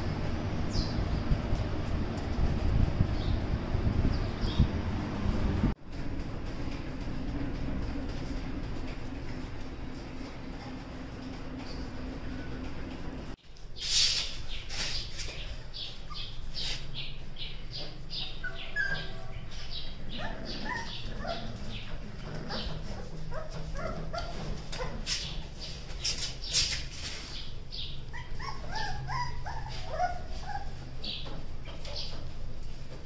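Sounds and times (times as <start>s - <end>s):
paws scuffling on concrete: 5.8s - 13.3s, 13.9s - 33.0s
puppies yipping and whimpering: 15.7s - 16.7s, 17.7s - 25.5s, 27.8s - 32.0s.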